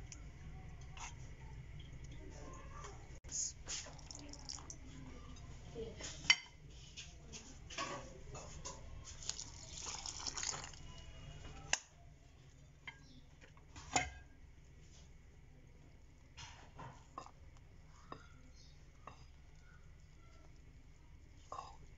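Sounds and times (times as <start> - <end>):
liquid pouring into bowl: 3.7 - 4.9, 9.2 - 11.0.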